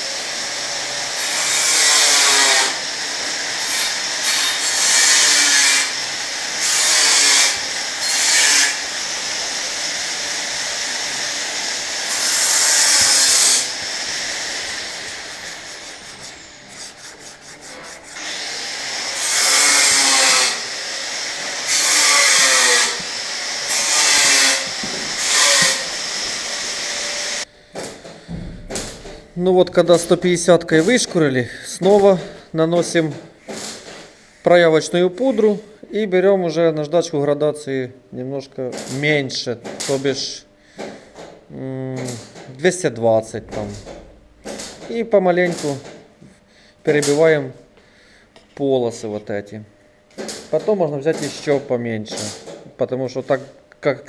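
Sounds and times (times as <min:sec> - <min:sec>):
sandpaper rasping on plastic: 0:14.7 - 0:20.6, 0:23.8 - 0:26.1.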